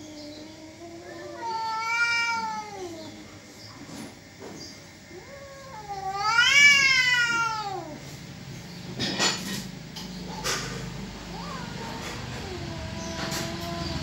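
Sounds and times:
cat yowling: 0.0s - 3.2s, 5.1s - 8.0s, 11.2s - 14.0s.

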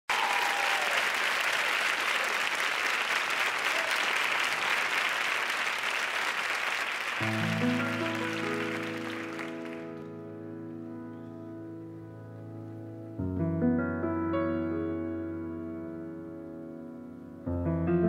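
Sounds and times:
audience applauding: 0.1s - 10.1s
grand piano chords: 7.2s - 18.0s.

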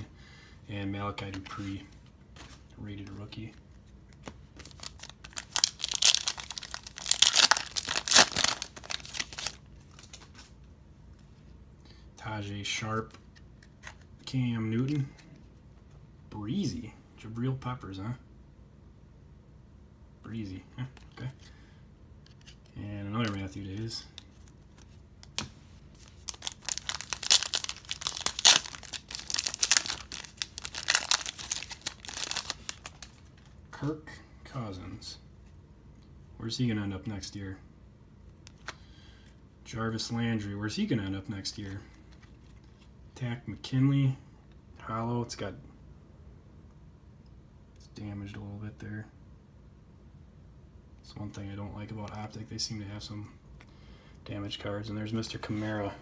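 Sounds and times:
foil wrapper tearing and crinkling: 4.7s - 9.6s, 26.0s - 33.2s.

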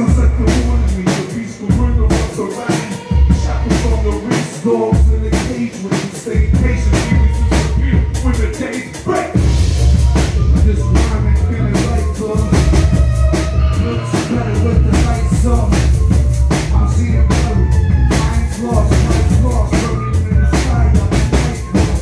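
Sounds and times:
drum kit groove: 0.0s - 22.0s
heavy bass line: 0.0s - 22.0s
sustained melodic notes: 6.4s - 22.0s.

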